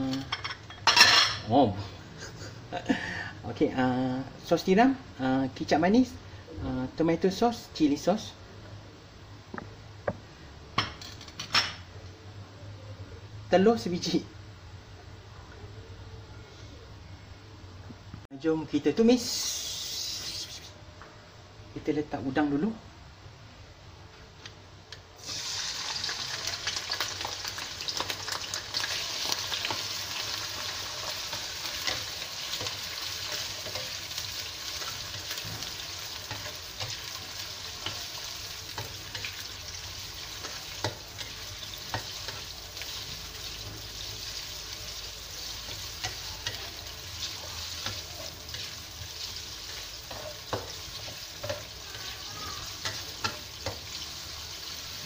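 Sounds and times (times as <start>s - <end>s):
prawns sizzling in oil: 19.2s - 20.8s, 25.2s - 55.0s.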